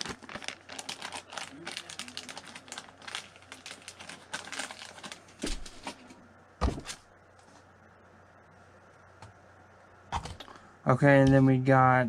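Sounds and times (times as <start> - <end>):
plastic packaging crinkling: 0.0 - 6.1.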